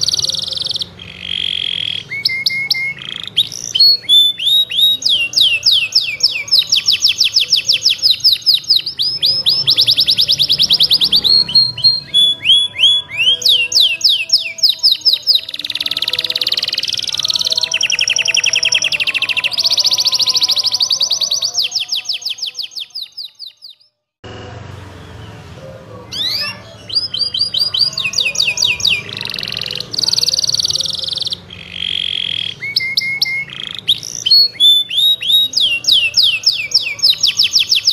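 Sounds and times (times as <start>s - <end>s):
canary singing: 0.0s - 37.9s.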